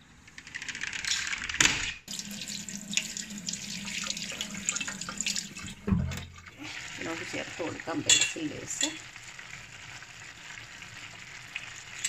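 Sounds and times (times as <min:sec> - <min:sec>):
tap water running into sink: 0:02.1 - 0:07.9.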